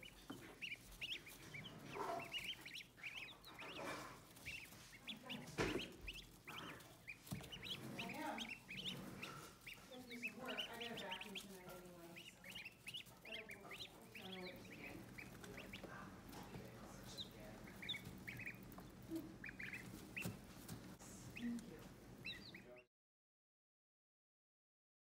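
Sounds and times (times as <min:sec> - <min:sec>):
ducklings peeping: 0:00.0 - 0:22.9.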